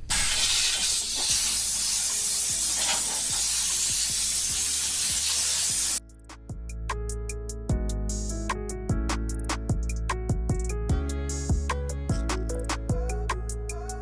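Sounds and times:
compressed air blow gun hissing: 0.0 - 6.0.

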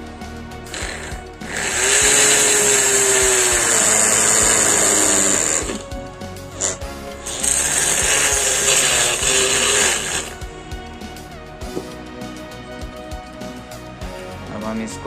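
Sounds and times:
drill grinding with high whine: 0.5 - 11.4.

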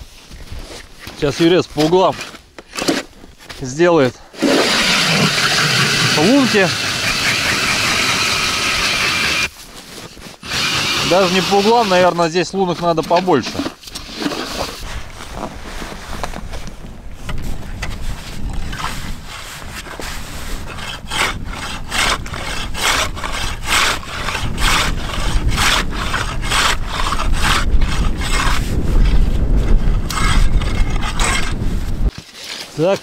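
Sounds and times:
ice auger rasping into ice: 1.8 - 3.1, 4.4 - 14.9, 18.5 - 29.2, 30.1 - 33.0.

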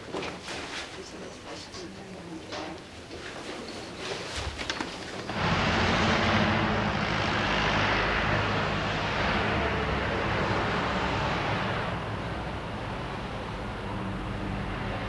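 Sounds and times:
traffic rush: 4.7 - 15.0
vehicle engine running: 5.3 - 14.3.

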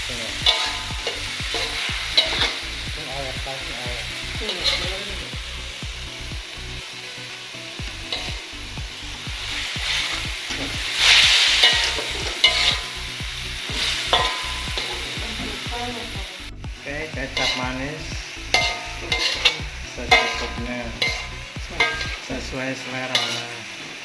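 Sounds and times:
food sizzling in a wok: 0.0 - 24.0
metal spatula scraping pan: 0.4 - 2.7, 9.9 - 13.0, 17.4 - 17.6, 18.5 - 22.3, 23.1 - 23.6.

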